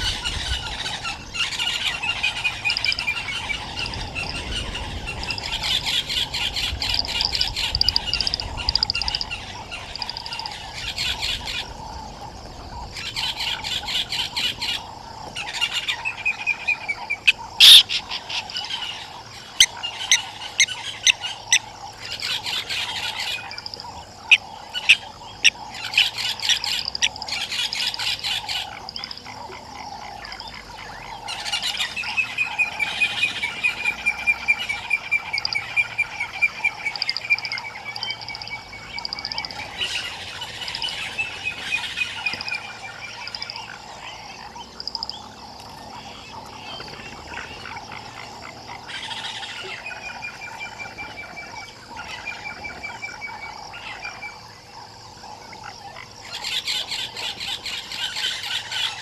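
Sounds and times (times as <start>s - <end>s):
rapid trilling calls: 0.0s - 12.1s, 12.8s - 59.0s
frog and bird chorus: 0.0s - 59.0s
sharp clicks: 6.9s - 9.4s.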